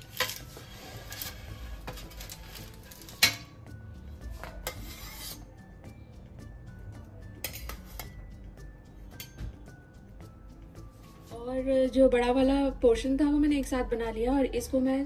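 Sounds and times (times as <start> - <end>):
wooden spatula scraping metal tray: 0.0 - 3.4, 4.2 - 5.5.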